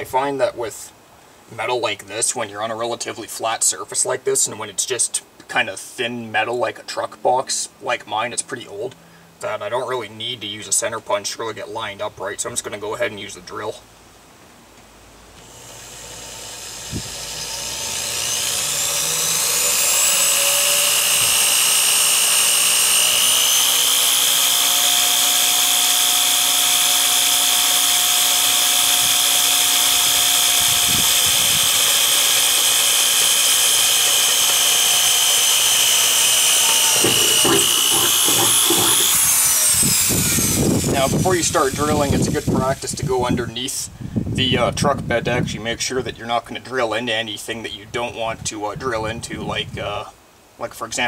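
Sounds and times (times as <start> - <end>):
drill motor whining: 15.4 - 43.1
knocks: 36.6 - 39.3.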